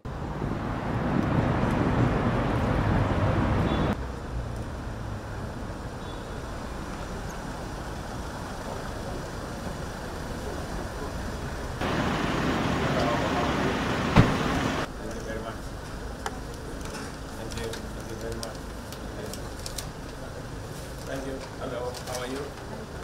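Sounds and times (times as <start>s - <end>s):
street traffic noise: 0.0s - 23.0s
car engines running: 0.7s - 14.9s.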